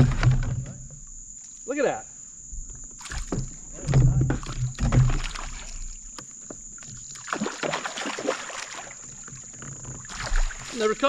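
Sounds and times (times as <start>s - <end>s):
fish splashing and thrashing: 0.0s - 0.6s, 2.8s - 11.0s
loud thumps: 0.0s - 1.0s, 2.5s - 5.4s.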